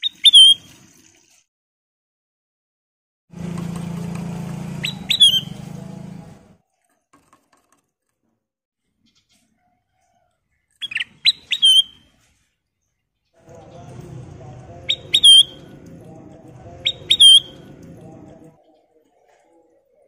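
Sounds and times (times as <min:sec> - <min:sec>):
bird whistled notes: 0:00.0 - 0:00.6, 0:04.8 - 0:05.6, 0:10.8 - 0:12.0, 0:14.8 - 0:15.8, 0:16.8 - 0:17.7
low steady hum: 0:13.5 - 0:18.6.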